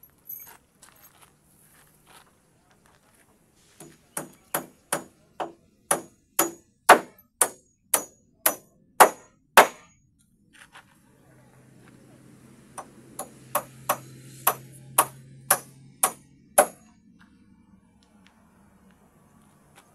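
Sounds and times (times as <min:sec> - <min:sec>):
hammer striking a nail: 0:03.8 - 0:10.0, 0:12.8 - 0:16.9.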